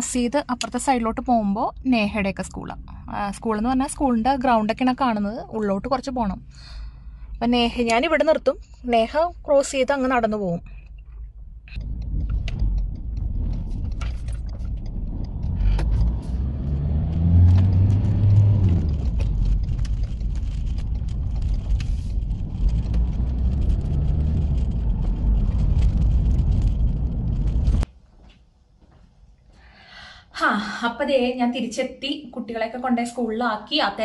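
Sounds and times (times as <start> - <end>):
car engine and tyre noise: 10.7 - 27.9
small clicks: 10.8 - 26.7.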